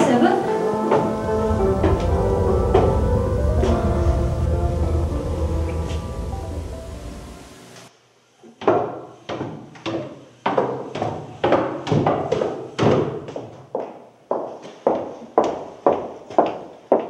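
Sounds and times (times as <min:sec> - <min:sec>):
music: 0:00.0 - 0:07.9.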